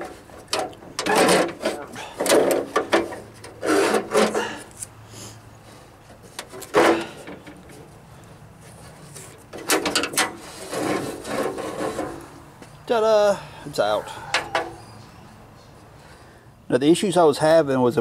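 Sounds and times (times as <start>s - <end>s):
metal latch scraping steel door: 0.0s - 4.7s, 9.2s - 12.4s, 14.2s - 15.2s.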